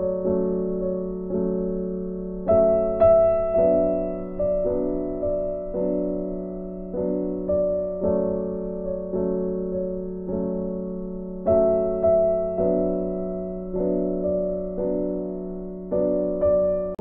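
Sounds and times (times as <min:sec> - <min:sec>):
slow gentle piano music: 0:00.0 - 0:17.0.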